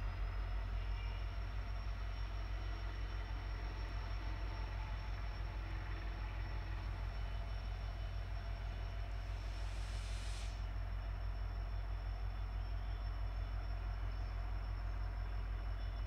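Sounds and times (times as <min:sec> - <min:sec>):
locomotive diesel engine rumbling: 0:00.0 - 0:16.0
short hiss: 0:09.2 - 0:10.7.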